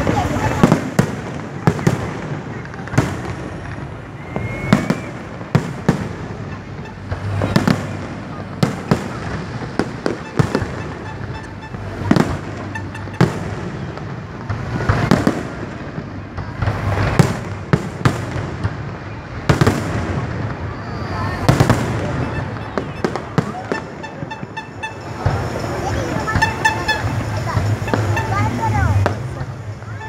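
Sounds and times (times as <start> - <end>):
fireworks crackling: 0.0 - 30.0.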